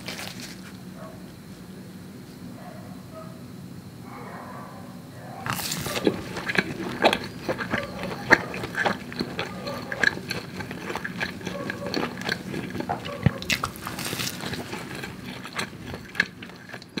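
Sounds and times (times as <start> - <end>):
person biting and chewing toast: 5.4 - 17.0.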